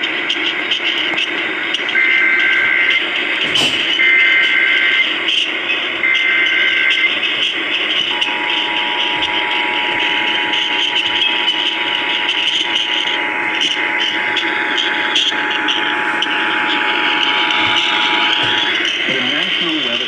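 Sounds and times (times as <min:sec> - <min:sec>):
two-tone attention signal: 0:01.8 - 0:20.0
radio static: 0:06.0 - 0:20.0
warbling digital chirps: 0:07.9 - 0:20.0.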